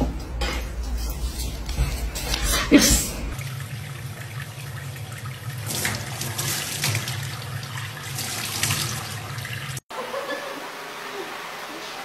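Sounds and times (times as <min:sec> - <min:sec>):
tap water running into sink: 0:03.4 - 0:09.8.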